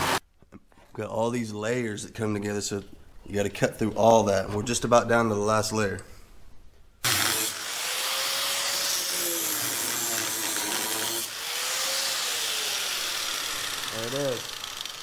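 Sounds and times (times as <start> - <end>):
angle grinder cutting steel: 0.0 - 0.2, 7.0 - 15.0.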